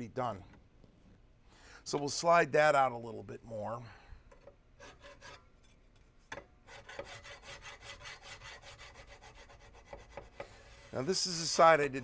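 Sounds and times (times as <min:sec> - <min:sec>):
hand file rasping on steel: 0:04.8 - 0:05.5, 0:06.7 - 0:11.1.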